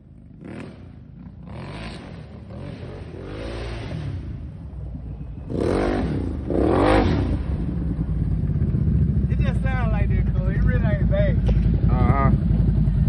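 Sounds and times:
engine revving through loud exhaust: 0.4 - 4.4, 5.5 - 7.7.

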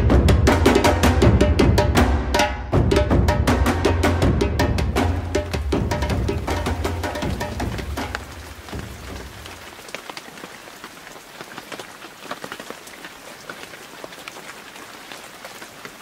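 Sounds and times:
music track: 0.0 - 9.3
rain falling on a lake: 4.9 - 16.0.

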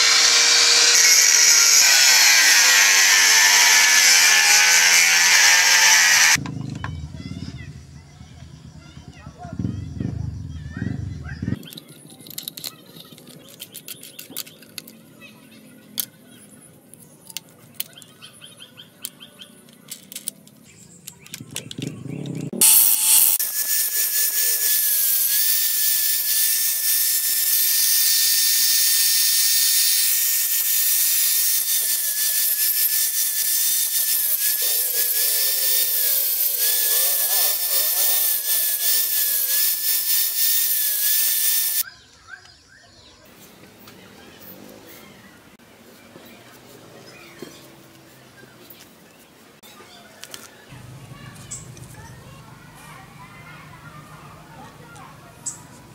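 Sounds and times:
angle grinder cutting metal: 0.0 - 6.4, 21.8 - 41.8
tool handling clicks: 11.6 - 15.0, 19.0 - 23.4.

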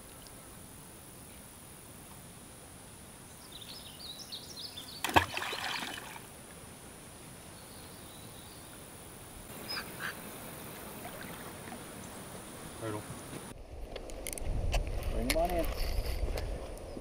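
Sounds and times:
steady high hiss: 6.0 - 13.6.

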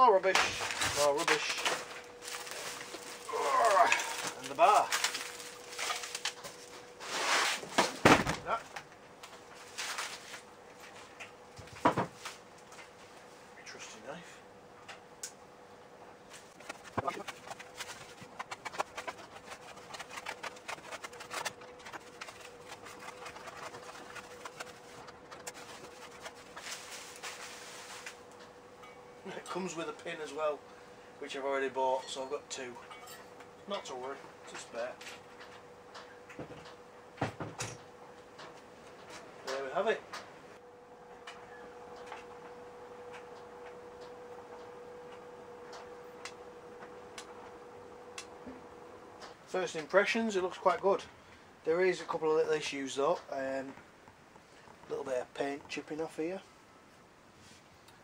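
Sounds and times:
faint steady hum: 0.0 - 58.0
plastic wrap crinkling: 0.5 - 6.8, 16.4 - 28.2.

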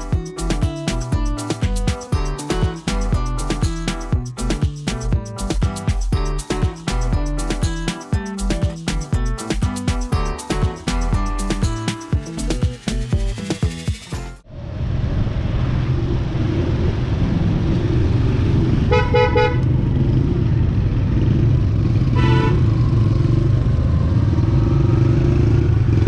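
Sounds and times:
motorcycle engine running: 17.0 - 26.0
vehicle horn honking: 18.9 - 19.6, 22.2 - 22.7.

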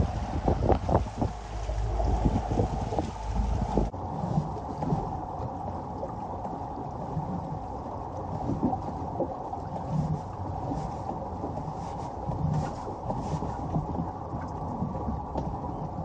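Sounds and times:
motorboat engine idling: 0.0 - 4.1
water moving around hull: 0.0 - 16.0.

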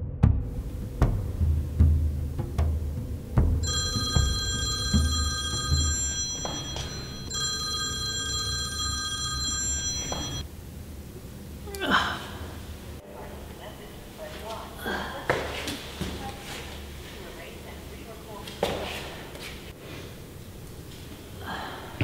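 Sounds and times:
low rumbling drum music: 0.0 - 3.6
phone ringing electronic trill: 3.6 - 10.4.

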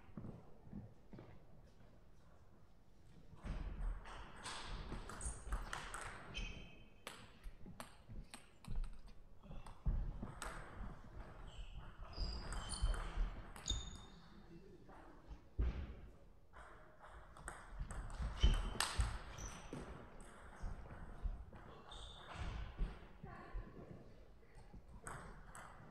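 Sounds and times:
shoes squeaking on floor: 6.2 - 7.1, 11.2 - 14.5, 18.2 - 20.7, 21.6 - 23.0.

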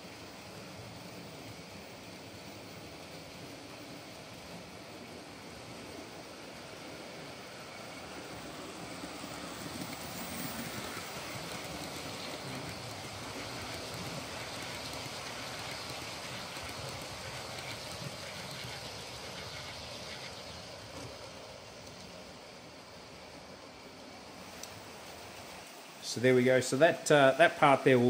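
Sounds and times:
model train wheels rolling: 0.0 - 28.0
small motors whirring: 1.8 - 22.2.

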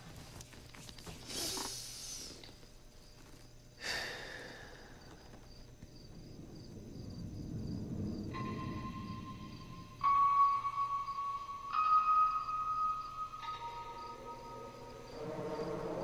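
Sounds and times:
faint steady hum: 0.0 - 16.0
man breathing heavily: 3.8 - 5.3
low drone: 6.1 - 16.0.

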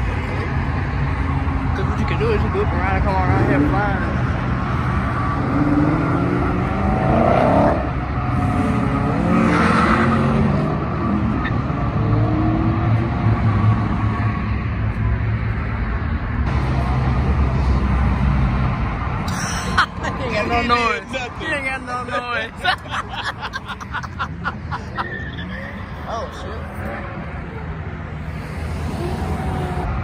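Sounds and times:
car engines revving and accelerating: 0.0 - 30.0
vehicles rolling past: 0.0 - 30.0.

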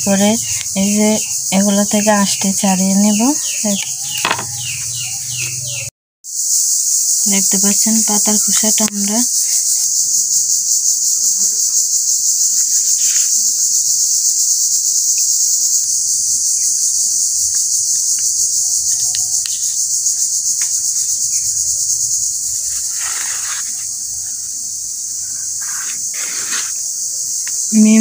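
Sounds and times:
insects trilling: 0.0 - 28.0
leaves rustling on cutting board: 22.7 - 23.9.

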